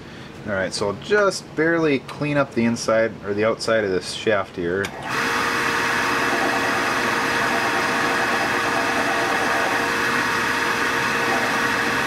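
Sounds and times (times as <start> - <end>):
lathe motor humming and whining: 4.9 - 12.0.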